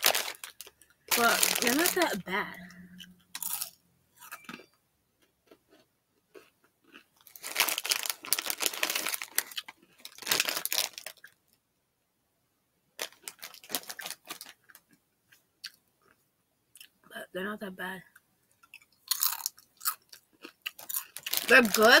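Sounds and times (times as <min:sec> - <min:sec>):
snack bag rustling and crunching: 0:00.0 - 0:02.6, 0:03.4 - 0:03.8, 0:05.4 - 0:11.4, 0:13.0 - 0:15.0, 0:18.6 - 0:22.0.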